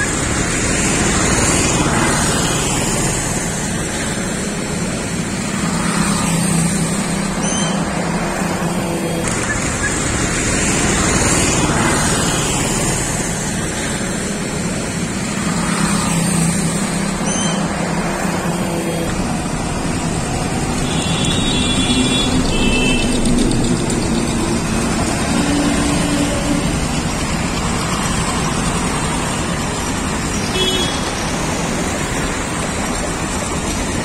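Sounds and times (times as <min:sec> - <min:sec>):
road traffic: 0:00.0 - 0:34.0
car horn toots: 0:20.8 - 0:23.3, 0:30.5 - 0:31.2.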